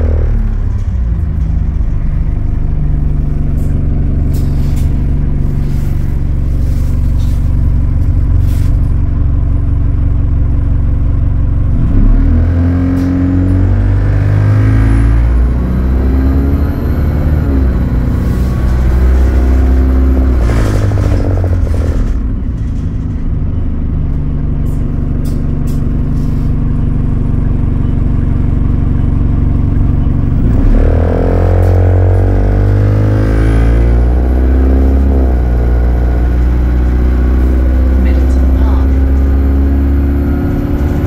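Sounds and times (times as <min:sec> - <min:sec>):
bus diesel engine: 0:00.0 - 0:41.0.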